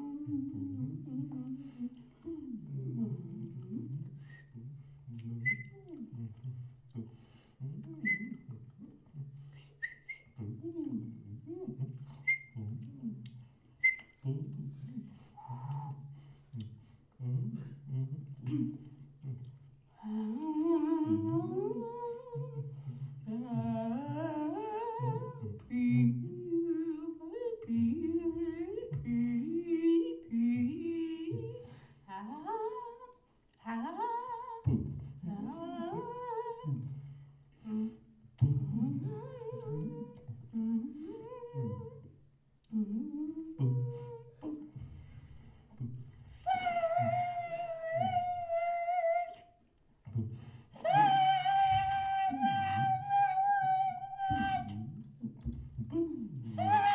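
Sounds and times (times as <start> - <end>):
woman singing sliding phrases: 0.0 - 4.3, 17.2 - 37.0, 37.6 - 45.2, 45.8 - 49.7, 50.3 - 56.9
man humming low: 0.0 - 33.2, 34.1 - 56.9.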